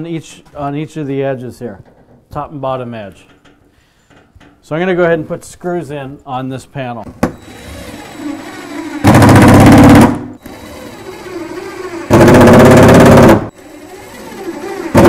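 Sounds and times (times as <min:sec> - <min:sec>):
impact driver hammering screws: 0:07.3 - 0:15.0.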